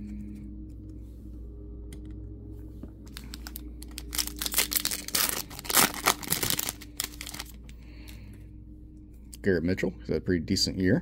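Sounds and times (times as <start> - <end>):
foil wrapper tearing and crinkling: 3.1 - 7.6.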